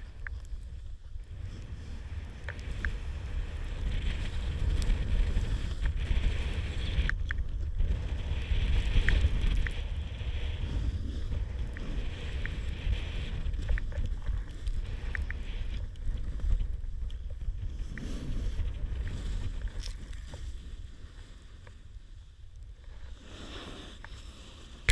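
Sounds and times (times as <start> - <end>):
wind buffeting microphone: 0.0 - 24.1
snowboard sliding through powder: 0.0 - 24.8
light clicks: 2.4 - 3.1.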